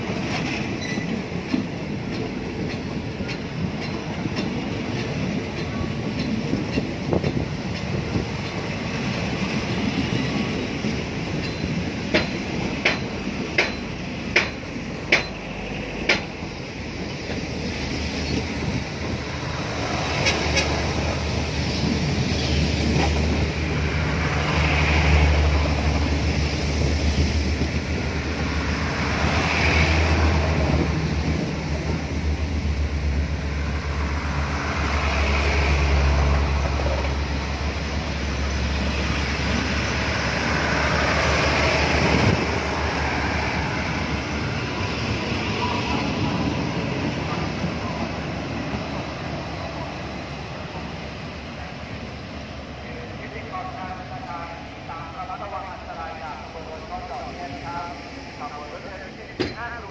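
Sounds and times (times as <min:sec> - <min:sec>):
train wheels clicking over rail joints: 0:00.0 - 0:42.6
train coaches rolling rumble: 0:00.0 - 0:59.9.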